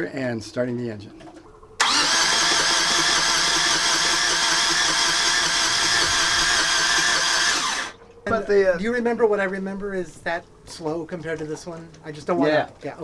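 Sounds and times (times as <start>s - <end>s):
starter motor cranking engine: 1.8s - 8.0s.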